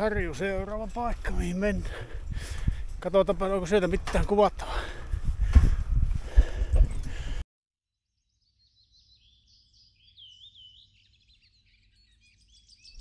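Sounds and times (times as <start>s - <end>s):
songbird chirps and trills: 0.0s - 3.2s, 8.0s - 13.0s.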